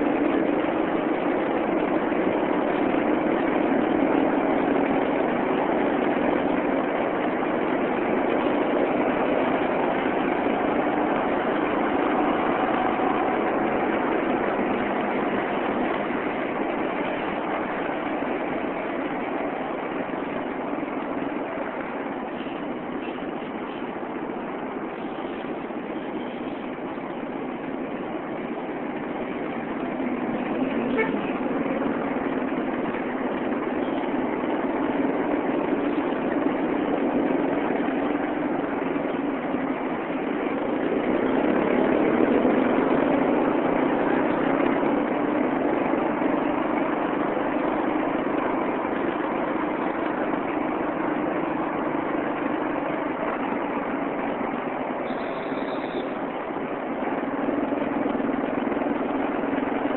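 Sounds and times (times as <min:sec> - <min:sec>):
vehicle engine and road noise: 0:00.0 - 0:59.9
car horn toot: 0:30.8 - 0:31.4, 0:55.0 - 0:56.2.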